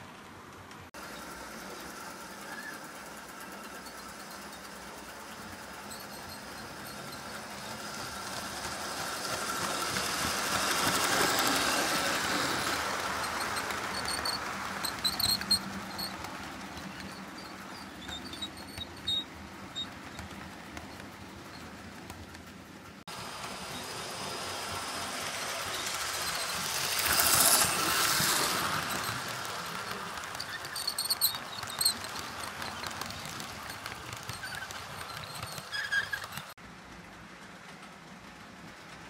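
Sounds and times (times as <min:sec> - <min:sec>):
model train wheels rumbling on rails: 0:00.0 - 0:39.0
brief high squeaks: 0:12.4 - 0:21.8, 0:28.4 - 0:36.5.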